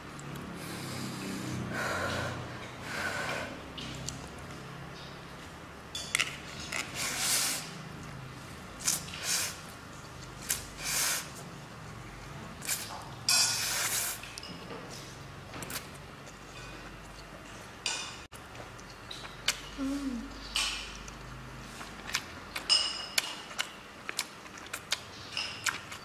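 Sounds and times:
chewing: 0:18.5 - 0:26.0.

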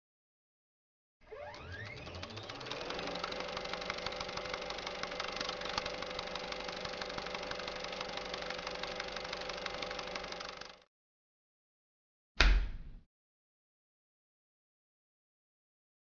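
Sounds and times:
projector motor whine: 0:01.2 - 0:10.9
film projector clattering: 0:01.3 - 0:10.9.

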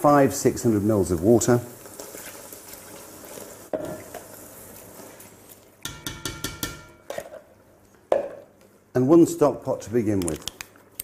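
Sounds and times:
water hissing in a hot pan: 0:00.0 - 0:05.7.

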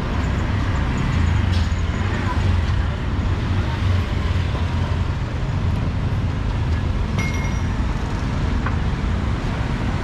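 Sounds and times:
street traffic rumble: 0:00.0 - 0:10.0
short metallic clink: 0:07.2 - 0:07.8.

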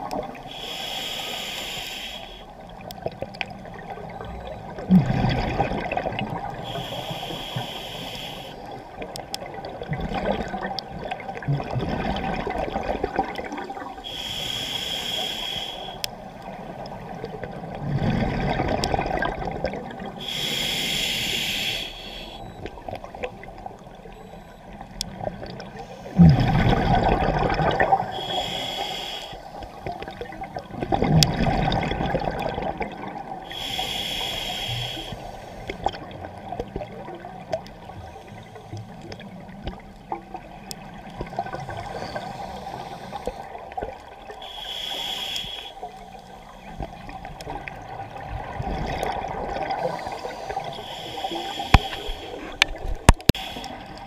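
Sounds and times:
regulator hissing inhale: 0:00.4 - 0:02.6, 0:06.6 - 0:08.8, 0:14.0 - 0:16.2, 0:20.2 - 0:22.6, 0:28.0 - 0:29.8, 0:33.5 - 0:35.8, 0:41.6 - 0:43.6, 0:44.4 - 0:47.4, 0:49.8 - 0:52.6, 0:53.2 - 0:54.0
exhaled bubbles rushing: 0:04.7 - 0:06.6, 0:09.4 - 0:14.0, 0:17.0 - 0:20.2, 0:26.2 - 0:28.2, 0:30.1 - 0:33.4, 0:47.0 - 0:50.0.

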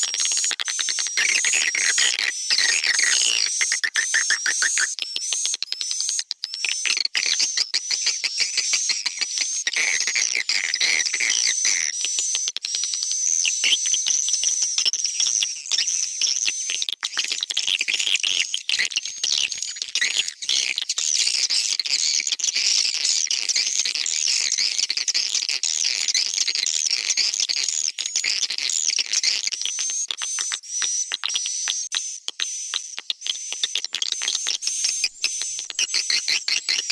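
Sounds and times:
high twittering bird calls: 0:28.2 - 0:36.9.

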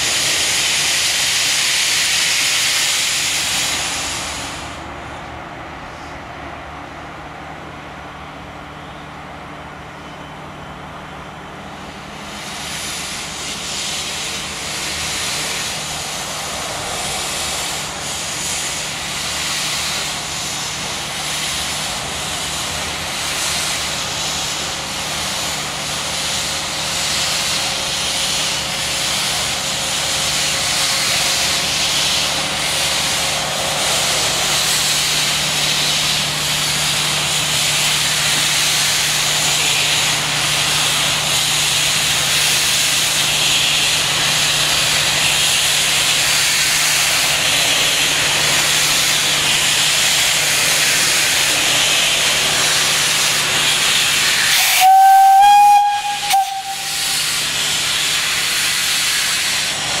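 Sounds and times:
steam hissing: 0:00.0 - 0:05.2, 0:11.6 - 1:00.0
steam whistle blast: 0:54.3 - 0:57.4.

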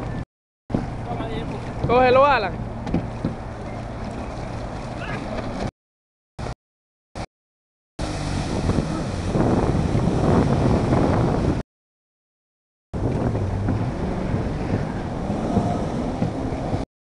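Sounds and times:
jet ski engine running: 0:00.0 - 0:05.7, 0:08.0 - 0:11.6, 0:13.0 - 0:16.8
water spray rushing: 0:08.0 - 0:10.8, 0:13.4 - 0:16.8
wind buffeting microphone: 0:08.0 - 0:11.6, 0:13.0 - 0:16.8.

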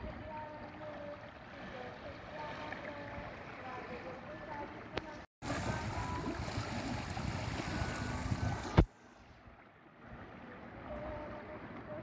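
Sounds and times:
sea water splashing: 0:00.0 - 0:12.0
wind on microphone: 0:05.4 - 0:08.9.

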